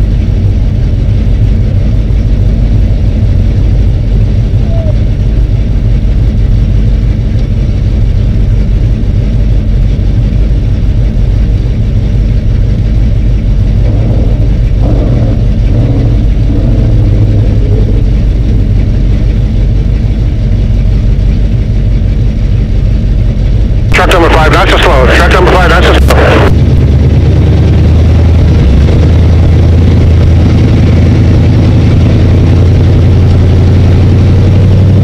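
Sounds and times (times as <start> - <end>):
race car engine idling: 0.0 - 35.0
engine note rising and falling: 11.0 - 35.0.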